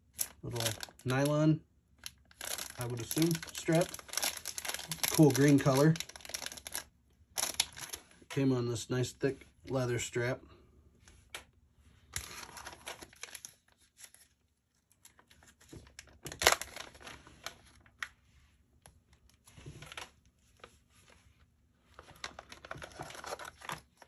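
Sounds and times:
plastic bags crinkling: 0.0s - 1.4s, 2.0s - 8.0s, 12.2s - 14.3s, 15.0s - 18.0s, 22.0s - 24.0s.

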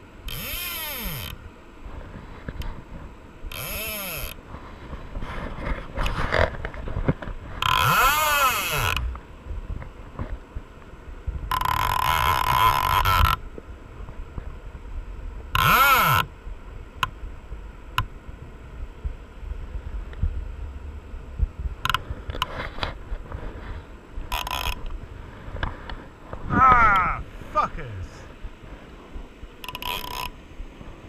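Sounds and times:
fishing reel clicks: 0.3s - 1.4s, 3.5s - 4.4s, 7.6s - 9.1s, 11.5s - 13.4s, 15.6s - 16.3s, 24.3s - 24.9s, 29.6s - 30.4s
wind buffeting camera: 4.2s - 31.0s.

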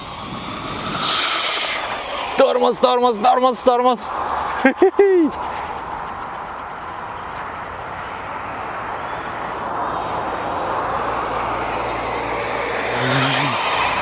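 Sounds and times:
toy motorcycle motor whirring: 0.0s - 2.9s, 11.1s - 14.0s.

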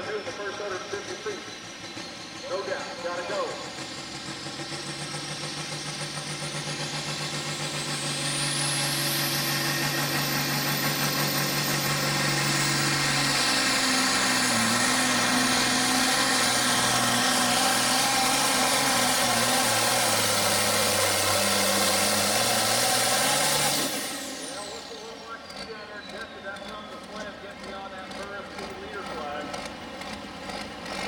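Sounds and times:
tractor diesel engine revving: 0.0s - 31.0s.

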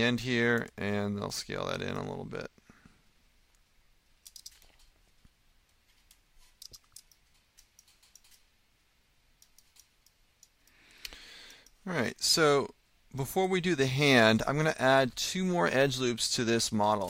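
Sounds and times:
computer mouse and keyboard clicks: 4.2s - 5.0s, 5.7s - 8.5s, 9.4s - 11.8s.

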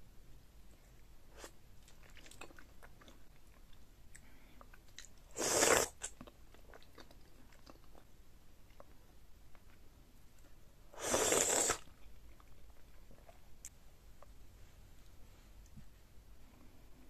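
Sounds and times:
loud mouthful of food: 5.3s - 6.2s, 11.0s - 11.9s
mouth chewing clicks and smacks: 6.0s - 8.1s.

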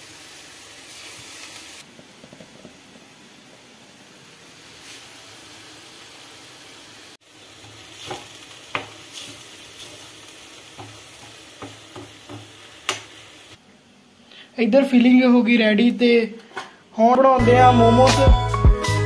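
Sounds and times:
food sizzling in hot oil: 0.0s - 1.9s, 2.6s - 13.6s.

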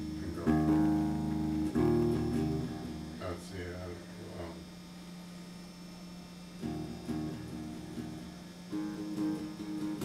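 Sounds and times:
electric guitar picked notes: 0.0s - 3.2s, 6.6s - 10.0s
steady hum: 0.0s - 10.0s.

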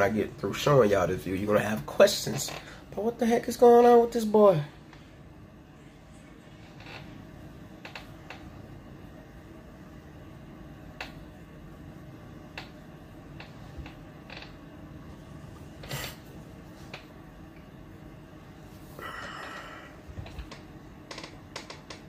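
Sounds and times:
low room hum: 0.0s - 22.0s.

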